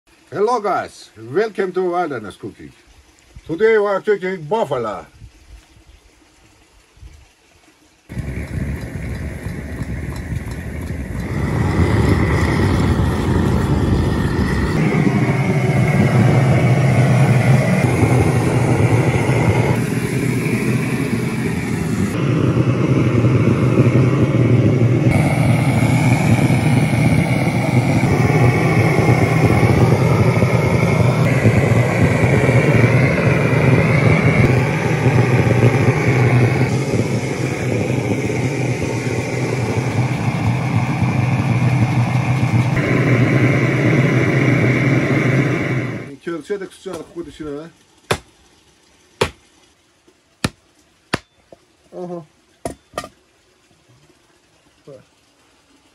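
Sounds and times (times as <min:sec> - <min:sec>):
blowtorch roaring: 0:08.1 - 0:46.1.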